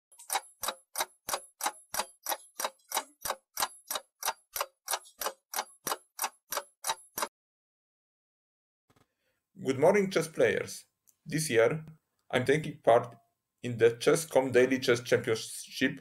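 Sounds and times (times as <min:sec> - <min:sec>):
clock ticking: 0:00.1 - 0:07.3.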